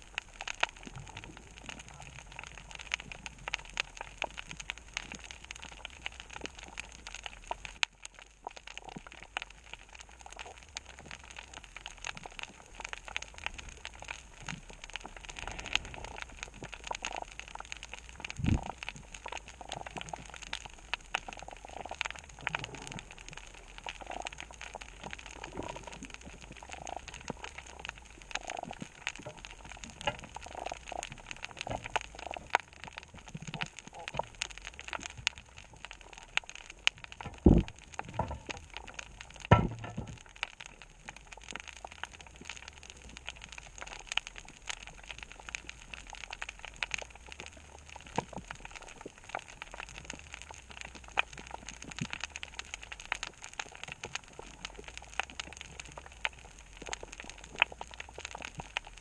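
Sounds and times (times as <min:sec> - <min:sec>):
snapping shrimp crackling underwater: 0:00.0 - 0:59.0
low thump: 0:39.5 - 0:40.2.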